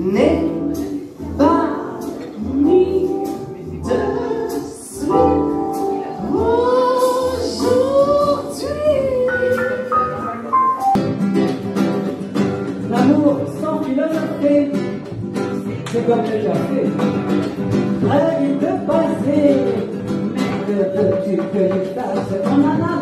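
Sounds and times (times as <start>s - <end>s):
woman singing into microphone: 0.0s - 10.8s, 12.9s - 15.0s, 18.0s - 23.0s
acoustic guitar plucked and strummed: 0.0s - 23.0s.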